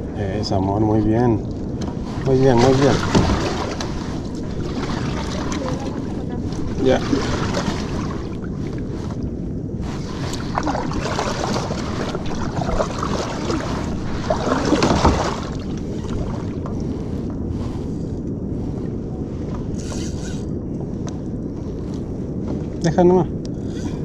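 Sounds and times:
wind noise on microphone: 0.0 - 24.0
paddle splashing in water: 1.8 - 9.0, 9.8 - 16.7.

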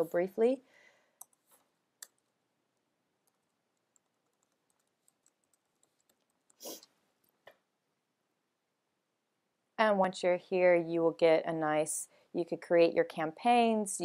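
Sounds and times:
faint keyboard typing: 1.2 - 7.6.

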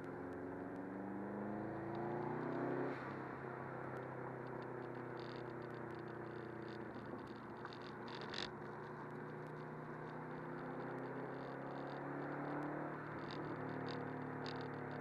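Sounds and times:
car engine cruising: 0.0 - 15.0
tyre and road noise: 0.0 - 15.0
small rattling ticks: 3.8 - 15.0.

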